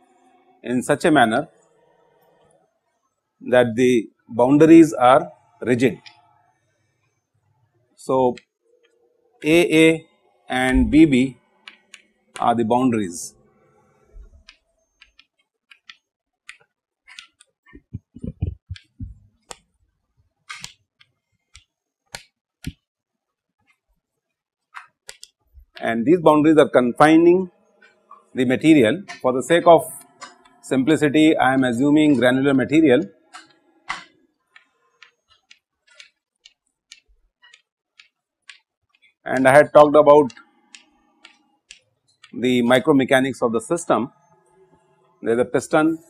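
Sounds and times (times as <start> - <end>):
chalk tapping and scratching on board: 14.2 - 19.7, 24.7 - 25.9, 33.3 - 39.6, 40.2 - 42.4.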